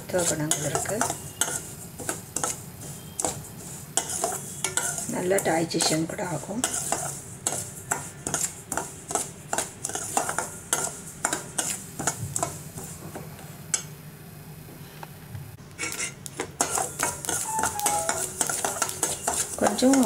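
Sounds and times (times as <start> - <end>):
metal spoon scraping steel pan: 0.2 - 5.2, 6.6 - 9.2, 15.8 - 20.0.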